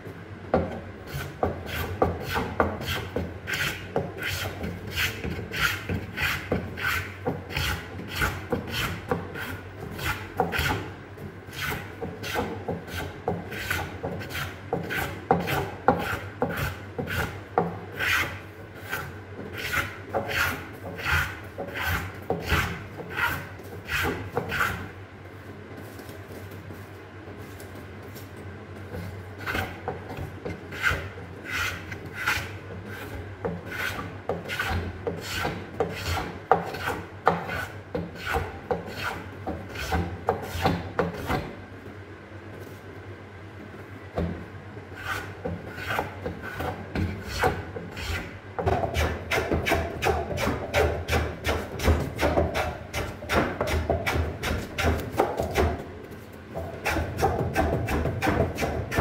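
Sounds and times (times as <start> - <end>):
hand plane shaving wood: 1.1 - 10.8, 11.5 - 17.4, 18.0 - 24.8, 30.7 - 41.3, 45.0 - 48.3.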